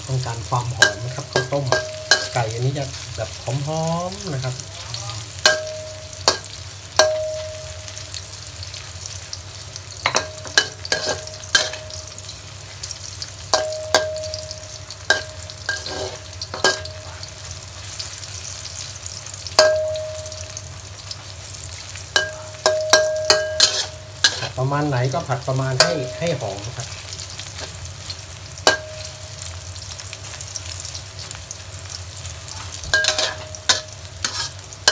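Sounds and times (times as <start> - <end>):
mushrooms sizzling in oil: 0.0 - 34.9
spatula clanging on wok: 0.5 - 3.1, 5.3 - 8.1, 10.0 - 12.3, 13.5 - 17.3, 19.5 - 20.7, 22.0 - 26.7, 28.6 - 29.5, 32.7 - 34.9.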